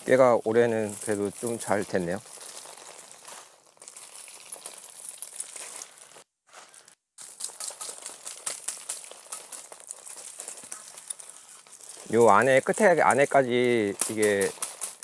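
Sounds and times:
dry stalks rattling: 0.0 - 15.0
seeds pattering onto plastic tarp: 0.0 - 15.0
pipe tapping stalks: 7.2 - 15.0.

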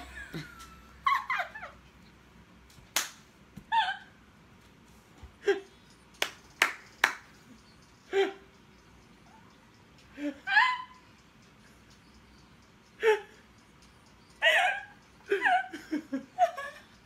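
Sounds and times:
sharp hand claps: 2.9 - 3.3, 6.1 - 7.4.

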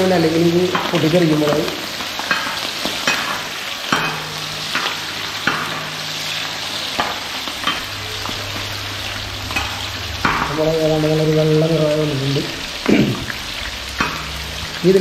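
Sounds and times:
chillies sizzling in oil: 0.0 - 15.0
oil crackling: 0.0 - 15.0
low steady hum: 4.0 - 15.0.

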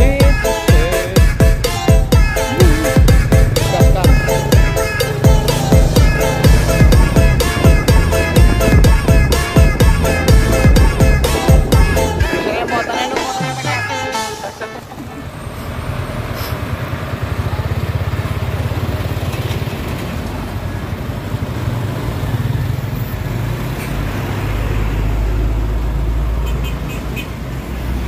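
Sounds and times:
diesel truck engine rumbling: 0.0 - 21.6.

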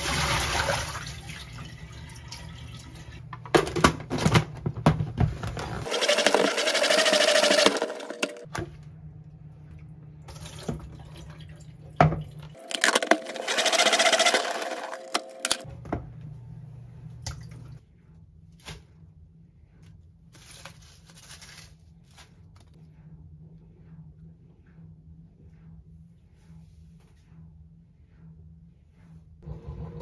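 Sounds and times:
water poured into sink: 0.0 - 3.2
salad spinner whirring: 5.8 - 8.5, 12.6 - 15.6.

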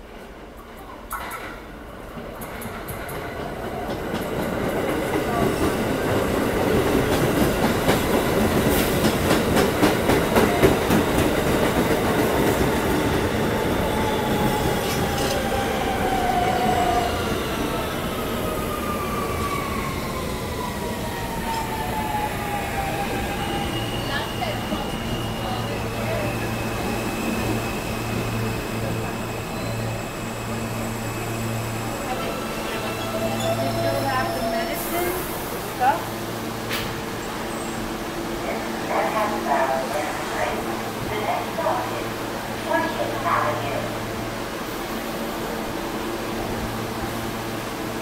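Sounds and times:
train wheels clattering over rails: 1.1 - 13.5.

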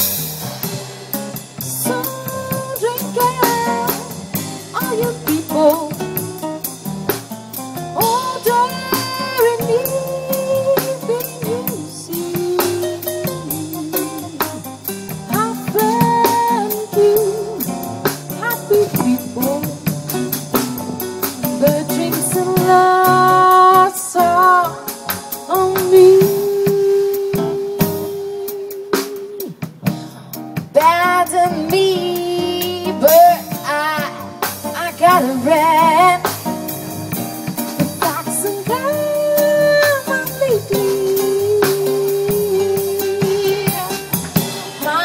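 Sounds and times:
keyboard: 0.0 - 29.2
drum kit with cymbals: 0.0 - 45.0.

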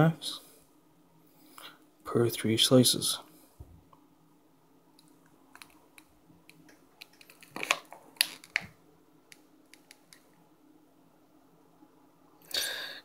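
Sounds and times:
plastic package crinkling: 7.0 - 8.7.

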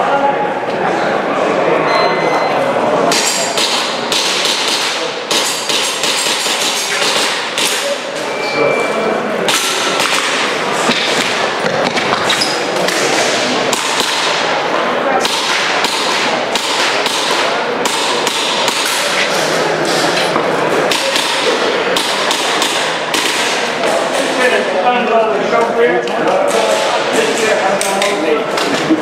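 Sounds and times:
distant chatter: 0.0 - 29.0
airsoft pistol shots: 3.1 - 7.9, 9.5 - 11.5, 13.7 - 14.5, 15.2 - 19.1, 20.9 - 23.6.

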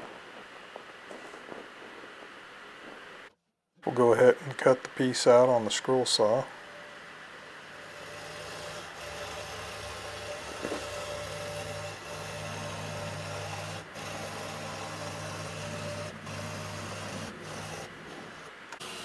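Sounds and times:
scroll saw cutting wood: 7.4 - 19.0.

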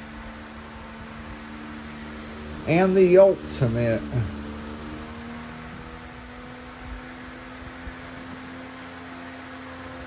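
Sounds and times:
fan air rushing: 0.0 - 10.0
fan motor hum: 0.0 - 10.0.

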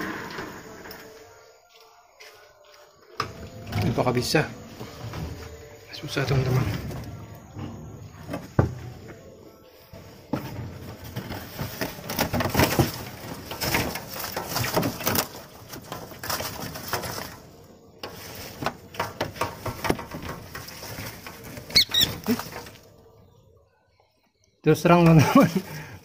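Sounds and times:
dry leaves and cardboard rustling: 0.6 - 23.4, 24.7 - 26.0
bird wings flapping: 18.2 - 22.9
shrill bird calls: 21.7 - 22.4.

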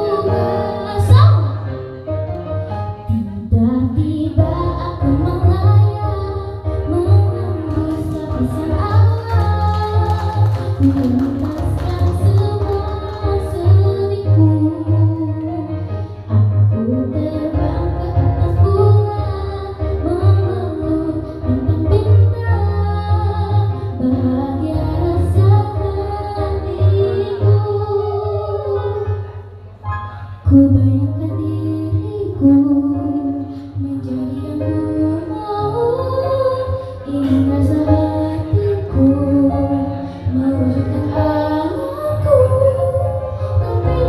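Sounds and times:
girl singing into a microphone: 0.0 - 1.7, 3.1 - 16.2, 16.8 - 29.4, 30.3 - 44.0.

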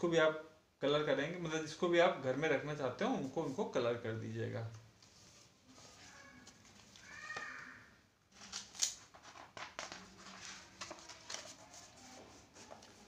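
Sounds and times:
paper pages rustling and flicking: 5.1 - 7.2, 8.3 - 13.0.

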